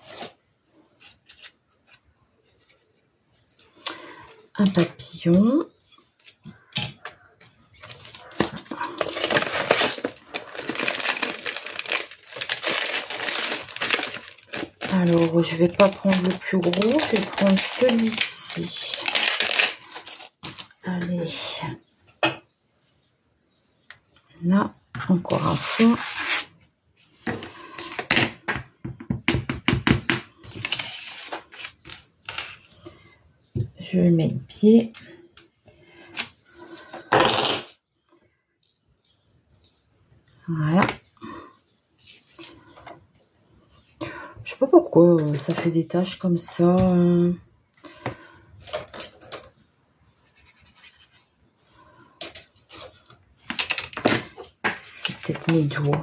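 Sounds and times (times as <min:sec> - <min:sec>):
paper rustling: 0:07.8 - 0:20.8
plastic sleeve crinkling: 0:07.8 - 0:20.9, 0:30.5 - 0:32.6.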